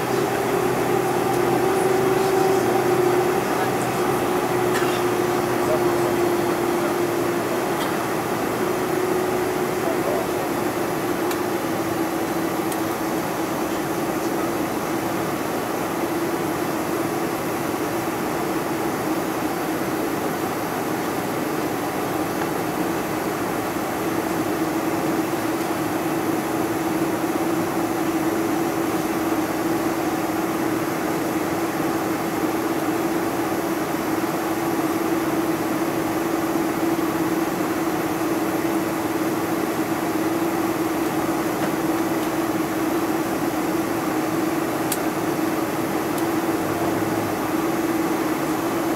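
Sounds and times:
jet engines droning hum: 0.0 - 48.9.

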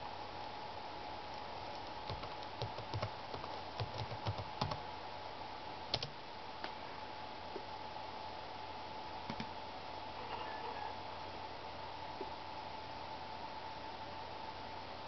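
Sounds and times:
typing on computer keyboard: 1.3 - 4.8.

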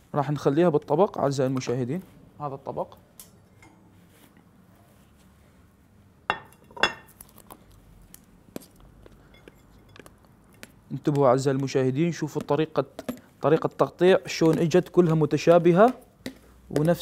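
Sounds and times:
dishes clinking: 6.3 - 7.1.

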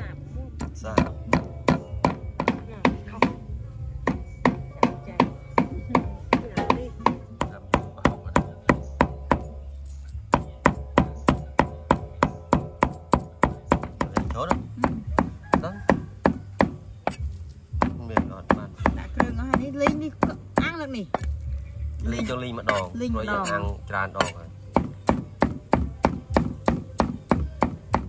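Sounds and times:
knife chopping on cutting board: 22.2 - 28.0.

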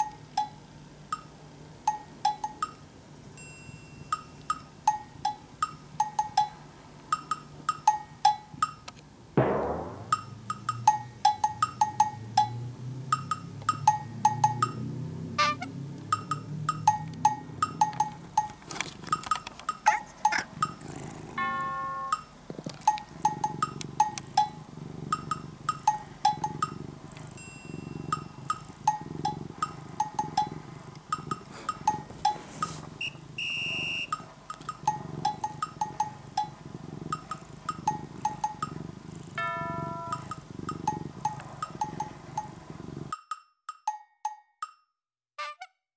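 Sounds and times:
wood-block clicks: 0.0 - 2.8, 4.1 - 9.0, 10.1 - 20.8, 33.8 - 38.7, 43.1 - 44.9
chimes: 3.4 - 5.1
cat purring: 9.7 - 43.1
light playful music: 21.4 - 23.5.

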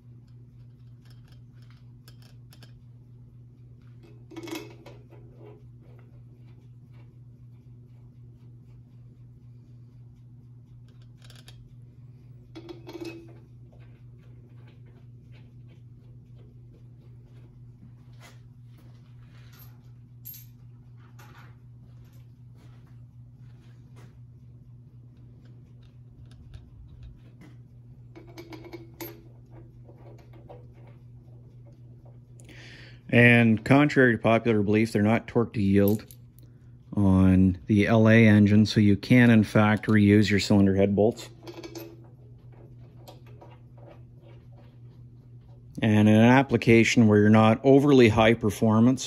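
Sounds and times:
steady low hum: 0.0 - 49.0
bolts clinking on metal: 12.6 - 13.4, 41.1 - 42.1
metal bolt clicking and clinking: 41.4 - 42.1.

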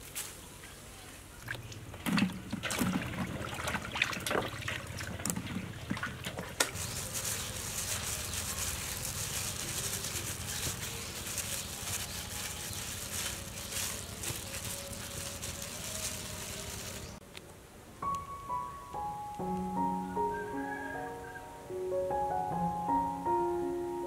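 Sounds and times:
knocks and rustling of fruit: 4.2 - 17.2.

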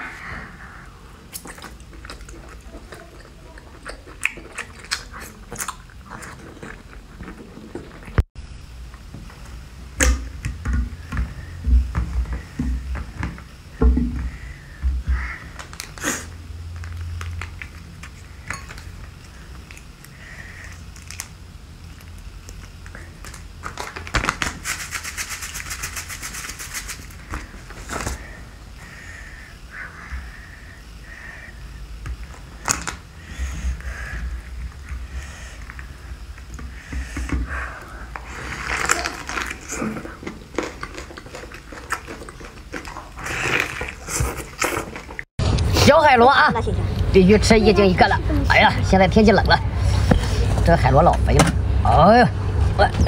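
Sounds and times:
chewing and wet mouth clicks: 1.3 - 8.2
low thumps with handling noise: 10.0 - 15.2
plastic packet shaken crinkly rattling: 23.6 - 27.2.

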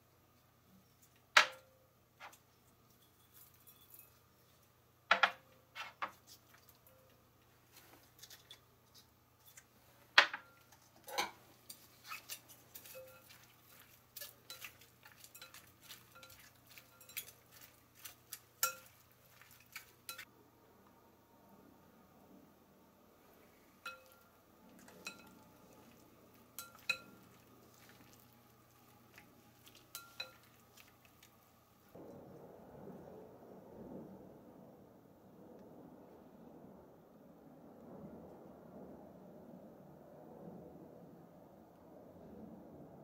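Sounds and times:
ceramic dishes clinking on countertop: 10.2 - 11.4, 23.9 - 24.2, 26.6 - 27.9, 29.8 - 30.6.

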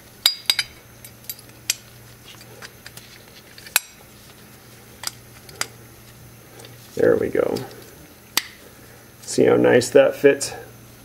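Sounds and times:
clicks and clinks of parts handled: 0.3 - 4.0, 5.0 - 5.8.

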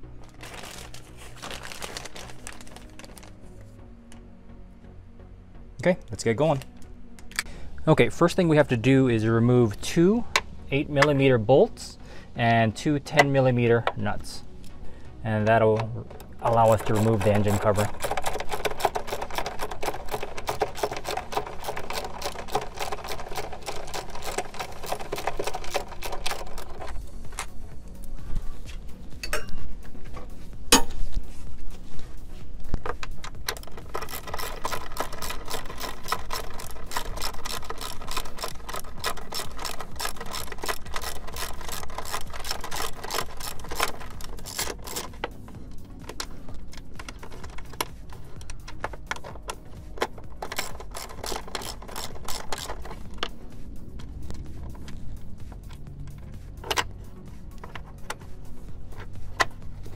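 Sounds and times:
hand ratchet clicking rapidly: 16.4 - 27.0, 33.2 - 45.4, 46.1 - 53.3.

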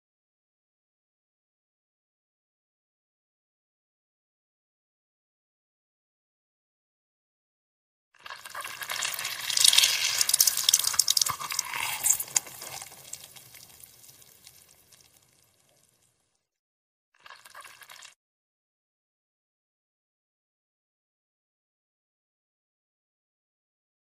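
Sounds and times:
mango squelching in hand: 9.4 - 13.2.

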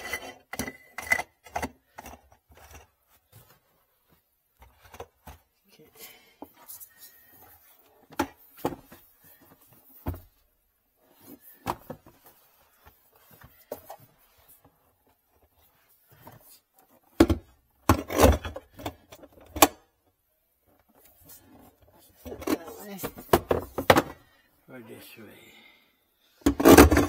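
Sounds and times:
plastic parts knocking: 17.1 - 19.7, 22.3 - 24.2, 26.4 - 27.0.

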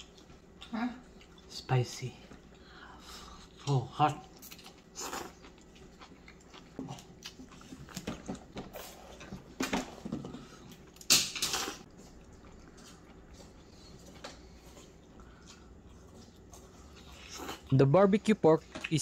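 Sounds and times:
person chewing noodles: 0.0 - 1.7, 2.3 - 9.4, 10.2 - 18.0.

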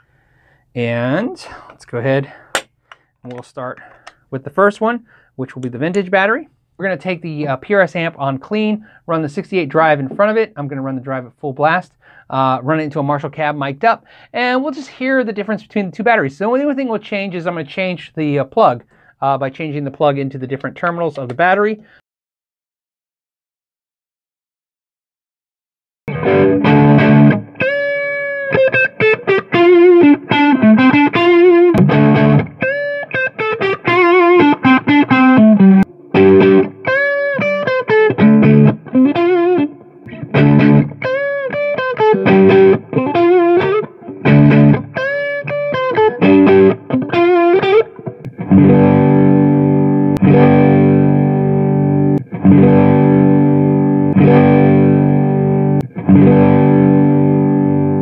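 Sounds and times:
distorted strummed guitar chords: 26.1 - 58.0
overdriven electric guitar lead: 26.1 - 58.0.

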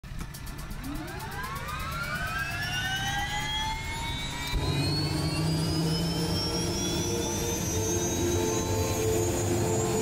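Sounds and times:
helicopter turbine whine: 0.1 - 10.0
deep steady hum: 2.9 - 10.0.

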